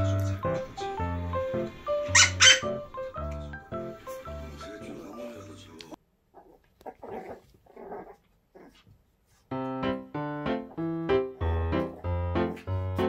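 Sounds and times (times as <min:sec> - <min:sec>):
bouncy piano music: 0:00.0 - 0:05.8, 0:09.5 - 0:13.0
puppy growling and yipping: 0:02.0 - 0:02.8, 0:06.3 - 0:08.9.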